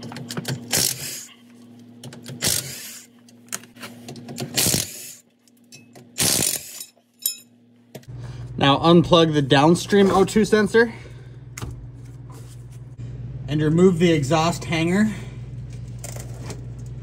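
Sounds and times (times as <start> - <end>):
impact wrench bursts: 0.4 - 1.3, 2.3 - 3.1, 4.4 - 5.2, 6.1 - 6.9.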